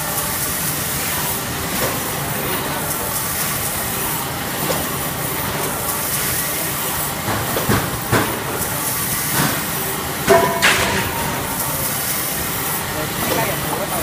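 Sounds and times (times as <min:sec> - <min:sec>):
band saw cutting machine running: 0:00.0 - 0:14.0
machine knocks and clatters: 0:07.2 - 0:11.5.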